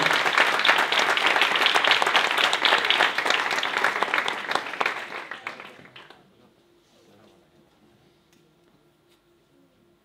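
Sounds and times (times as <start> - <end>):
audience applause: 0.0 - 6.2.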